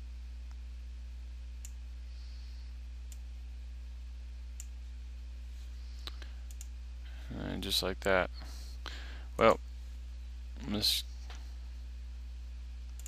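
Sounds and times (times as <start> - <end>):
low electrical hum: 0.0 - 13.0
computer mouse clicks: 6.0 - 6.7.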